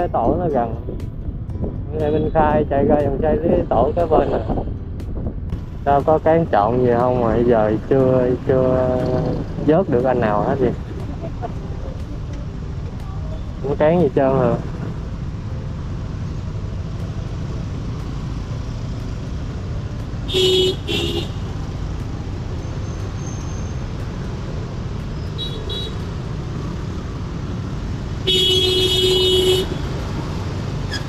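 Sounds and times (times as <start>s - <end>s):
vehicle horn honking: 20.3s - 21.5s, 25.4s - 26.0s, 28.2s - 29.9s.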